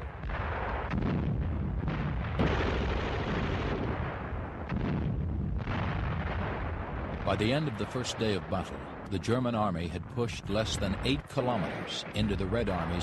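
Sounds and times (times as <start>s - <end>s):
rumbling explosions: 0.0s - 13.0s
gunfire: 0.2s - 9.1s.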